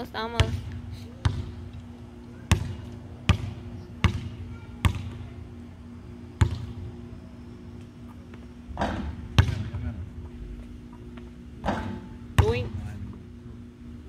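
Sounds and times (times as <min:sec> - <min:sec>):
steady low hum: 0:00.0 - 0:14.0
basketball bouncing on hard floor: 0:00.4 - 0:01.5, 0:08.8 - 0:09.7, 0:12.4 - 0:12.7.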